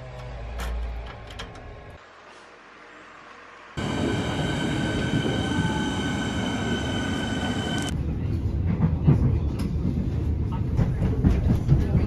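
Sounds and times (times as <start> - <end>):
electric train whine: 0.0 - 8.0
train carriage rumble: 3.8 - 12.0.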